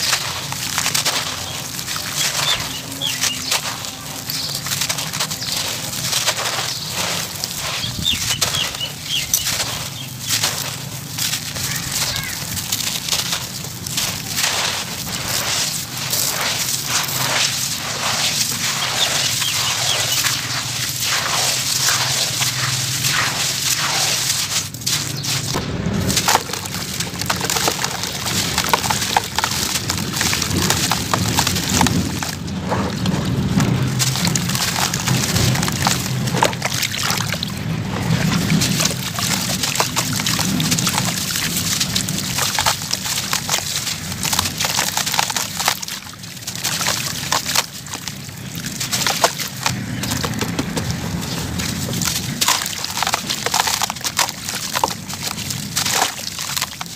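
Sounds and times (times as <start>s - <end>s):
gritty crunching of wet sand: 0.0s - 56.9s
water sloshing: 0.0s - 56.9s.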